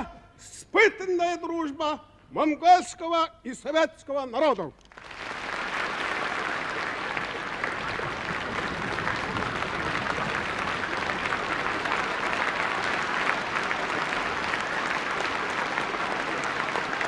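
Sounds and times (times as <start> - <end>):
audience applauding: 4.9 - 17.0.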